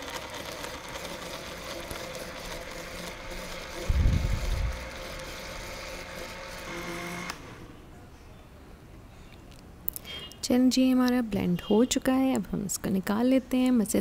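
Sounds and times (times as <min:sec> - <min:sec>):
blender motor running: 0:00.0 - 0:07.6.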